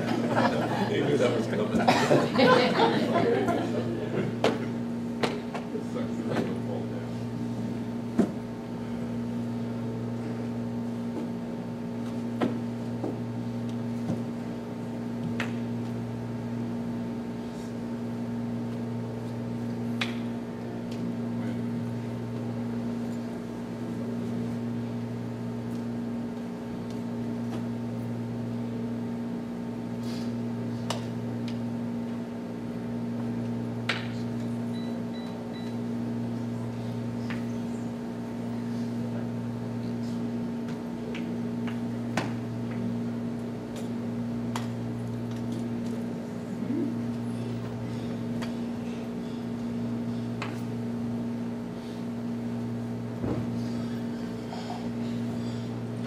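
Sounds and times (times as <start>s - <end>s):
low mechanical room hum: 0.0s - 56.0s.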